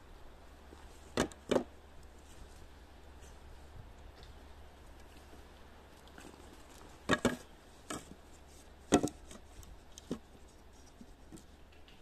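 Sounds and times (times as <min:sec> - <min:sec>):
wood knocks: 0:08.9 - 0:09.2.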